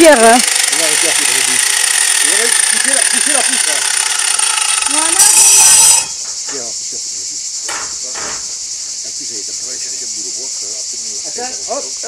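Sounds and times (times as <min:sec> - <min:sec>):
insects chirping: 0:00.0 - 0:12.0
light knocks: 0:07.6 - 0:08.6.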